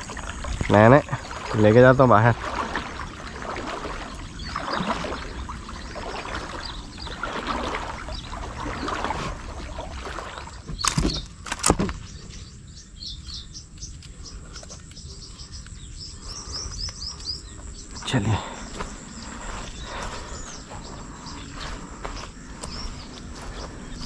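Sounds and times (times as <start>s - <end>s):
water splashing and swishing: 0.0s - 12.7s, 13.9s - 24.0s
birds chirping: 0.0s - 24.0s.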